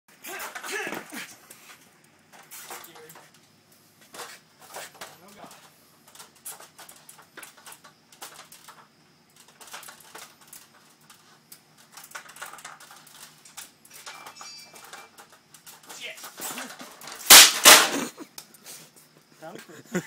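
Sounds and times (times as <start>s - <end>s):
shoes on ladder rungs: 0.1s - 3.3s, 4.0s - 5.7s
stepladder creaking: 4.1s - 18.1s
short high squeak: 13.9s - 15.1s.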